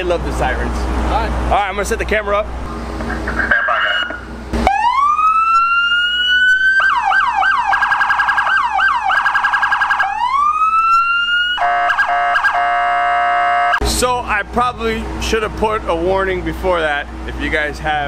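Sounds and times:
police car siren: 0:03.2 - 0:13.8.

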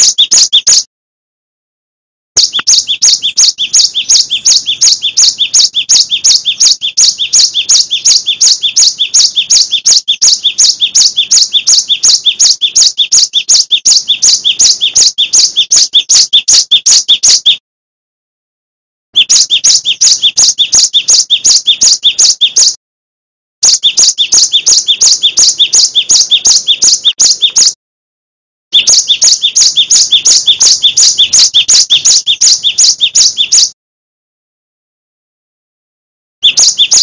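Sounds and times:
bird singing a fast repeated note: 0:00.0 - 0:00.9, 0:02.4 - 0:17.6, 0:19.2 - 0:22.8, 0:23.6 - 0:27.8, 0:28.7 - 0:33.8, 0:36.4 - 0:37.0.

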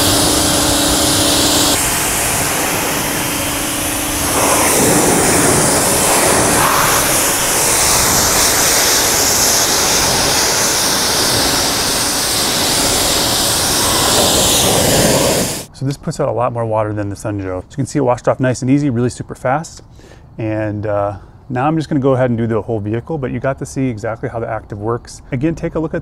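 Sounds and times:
high-pressure water spray hiss: 0:00.0 - 0:15.7
pressure washer motor hum: 0:00.0 - 0:15.7.

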